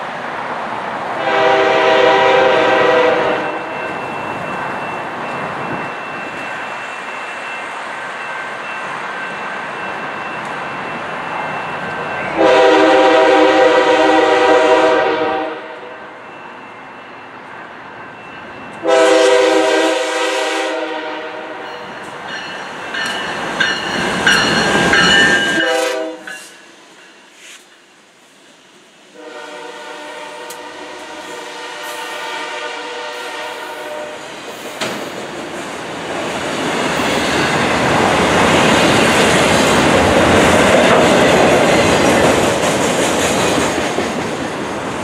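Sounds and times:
locomotive air horn blasts: 1.2s - 3.7s, 12.4s - 15.9s, 18.8s - 21.6s, 25.5s - 26.5s, 29.1s - 34.2s
sharp clicks from train wheels: 3.6s - 12.4s, 21.6s - 28.6s, 30.4s - 32.2s, 33.6s - 45.0s.

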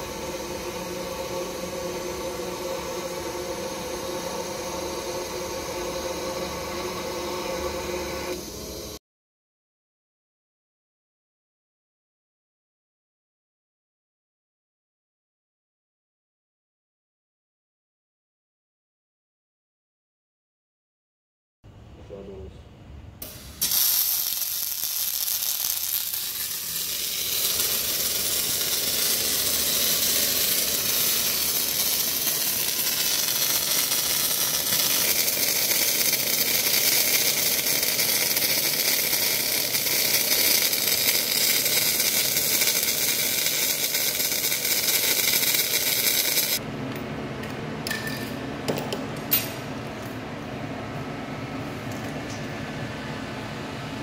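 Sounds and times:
welding arc crackling: 0.0s - 8.9s, 23.2s - 46.6s
steady hum: 0.0s - 9.0s.

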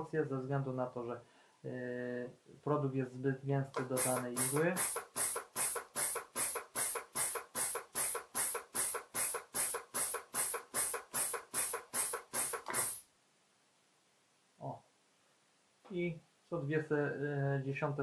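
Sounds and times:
short hisses of compressed air: 3.8s - 13.1s.

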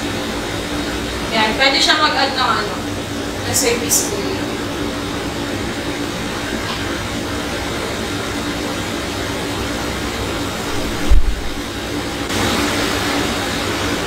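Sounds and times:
background hum and hiss: 0.0s - 14.0s
short low thump: 10.9s - 11.6s.

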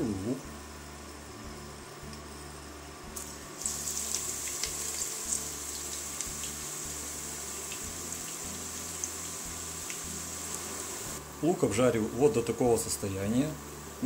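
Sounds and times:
onions sizzling in oil: 3.1s - 14.0s.

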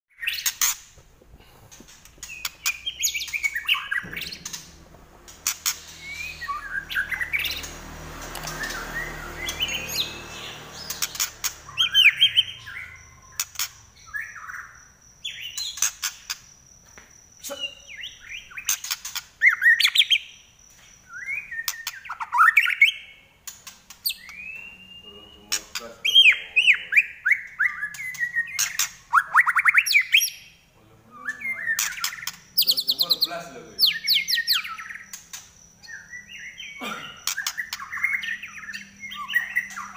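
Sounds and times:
bird singing: 0.1s - 1.0s, 1.7s - 39.9s
low rumbling noise: 3.8s - 13.3s.

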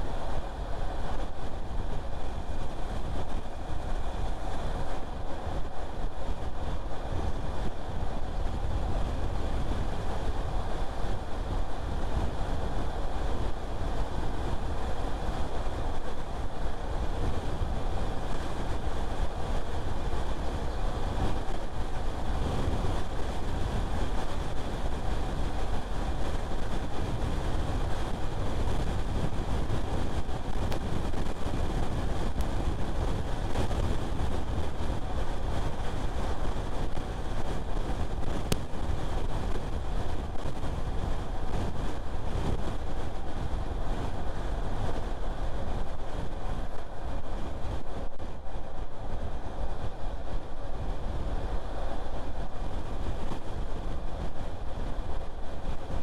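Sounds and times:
car road and wind noise: 0.0s - 56.0s.

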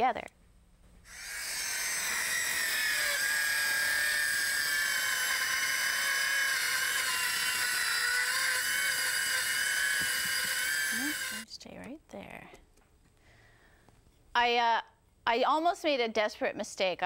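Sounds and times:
circular saw cutting wood: 1.1s - 11.5s.

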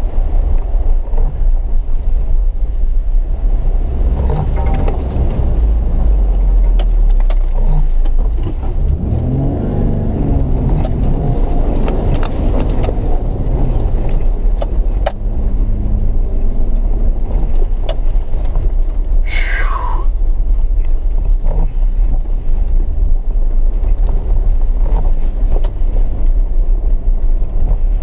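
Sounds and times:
vehicle engine revving: 3.2s - 18.6s.

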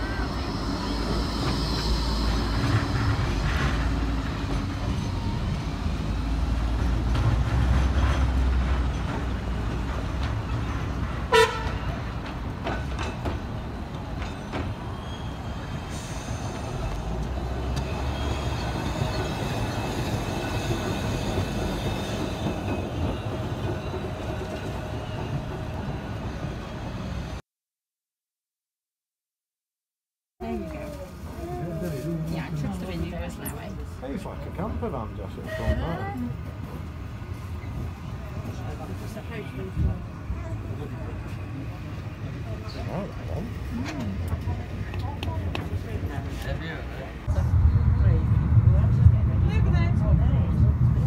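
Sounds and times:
tram warning toot: 0.0s - 27.0s
tram approaching: 0.0s - 27.4s, 30.4s - 51.0s
tram rumbling past: 0.0s - 27.4s, 30.4s - 51.0s.

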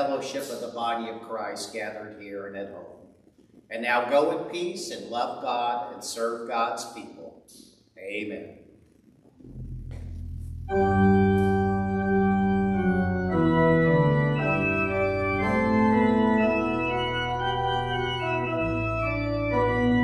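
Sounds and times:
church organ playing: 9.8s - 20.0s.

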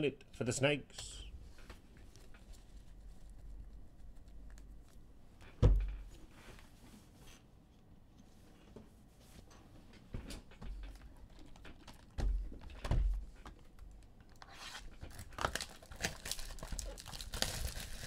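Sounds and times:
dull thump: 5.6s - 6.1s.

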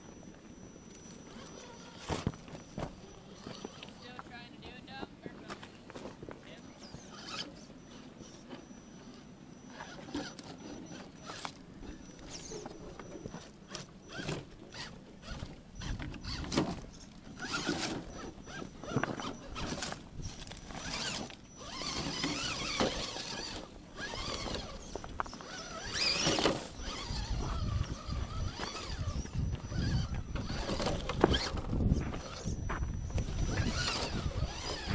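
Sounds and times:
drivetrain grinding: 0.0s - 4.8s, 6.0s - 34.9s
toy car motor whine: 0.2s - 4.2s, 6.8s - 34.9s.

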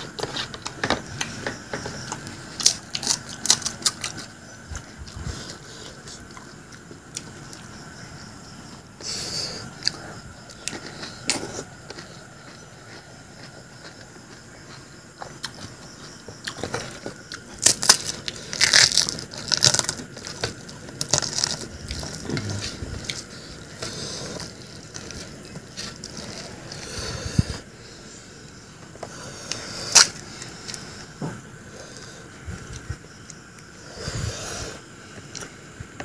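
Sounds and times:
crisp shells crunching when chewed: 2.0s - 7.8s, 15.3s - 26.9s, 29.5s - 30.9s
crisp shell cracking open: 17.6s - 22.5s.

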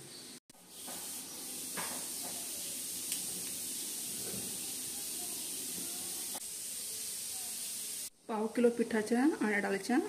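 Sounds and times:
steady hiss: 0.6s - 8.1s.

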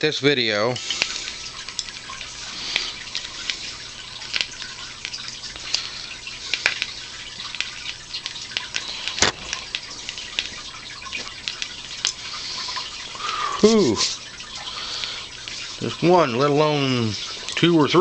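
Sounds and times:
fire crackling and popping: 0.9s - 13.3s.

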